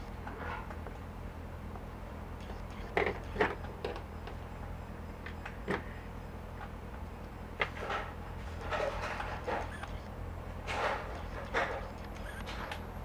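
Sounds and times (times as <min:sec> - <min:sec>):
steady low hum: 0:00.0 - 0:13.0
scraping rustles: 0:07.7 - 0:10.0, 0:10.6 - 0:12.8.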